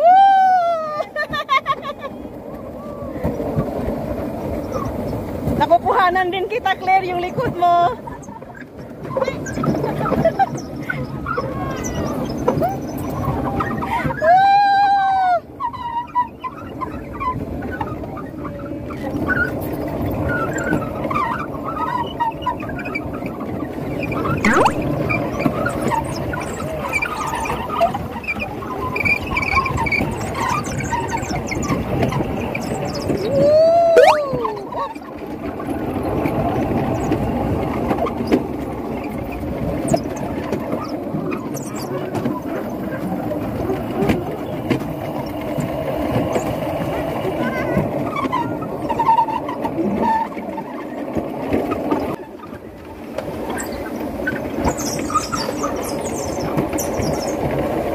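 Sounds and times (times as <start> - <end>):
coaster sled rumbling on track: 0.0 - 57.9
high squeaks: 24.4 - 26.1.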